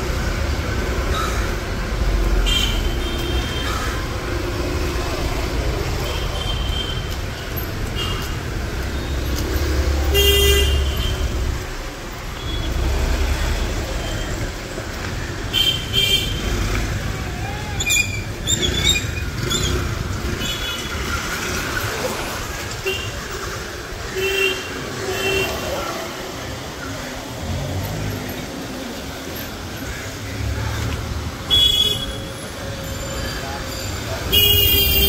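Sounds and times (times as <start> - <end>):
traffic passing: 0.0 - 35.0
vehicle horns honking: 10.0 - 11.4, 31.5 - 33.4, 34.2 - 35.0.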